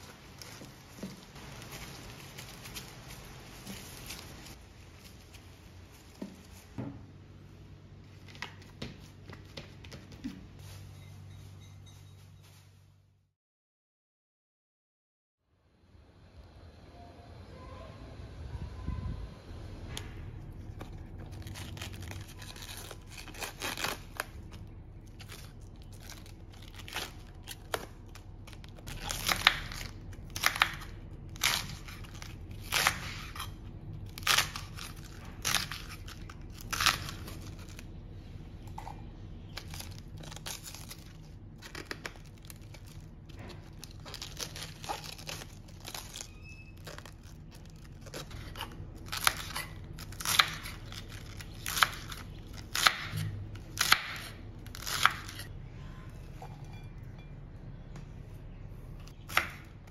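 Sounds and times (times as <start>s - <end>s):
cabbage leaves crinkling: 0.0s - 6.8s, 20.3s - 52.9s.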